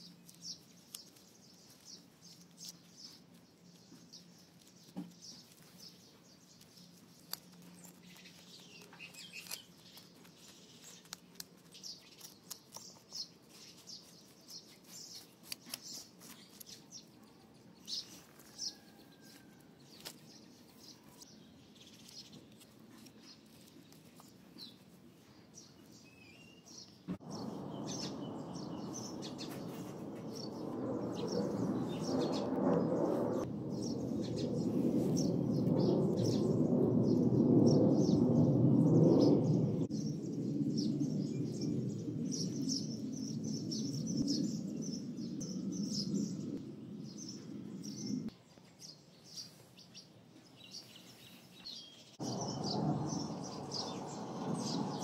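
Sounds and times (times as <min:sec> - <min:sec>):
small birds chirping: 0:00.0 - 0:55.0
steady rushing noise: 0:27.1 - 0:48.3, 0:52.2 - 0:55.0.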